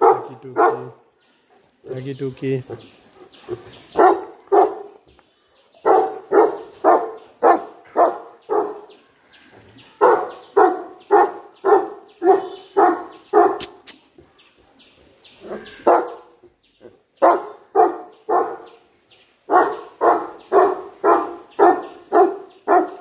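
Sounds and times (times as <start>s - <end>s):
dog barking: 0.0s - 1.0s, 3.9s - 5.0s, 5.8s - 9.0s, 10.0s - 13.8s, 15.5s - 16.4s, 17.2s - 18.8s, 19.5s - 23.0s.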